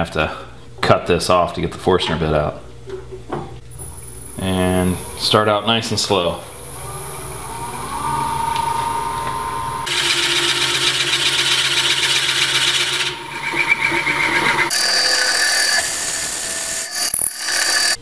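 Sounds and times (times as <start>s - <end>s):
lathe whining: 4.2s - 18.0s
drill bit scraping into wood: 14.2s - 18.0s.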